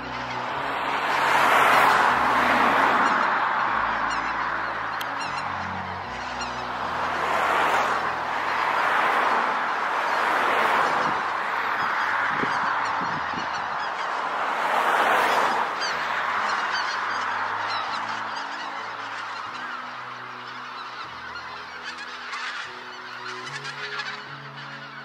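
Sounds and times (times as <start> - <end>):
soft music with long held notes: 0.0 - 10.2, 15.8 - 25.0
geese honking: 0.0 - 25.0.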